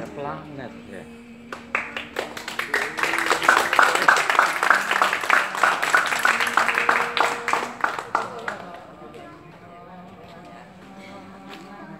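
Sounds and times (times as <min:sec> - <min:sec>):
audience applauding: 0:01.5 - 0:08.8.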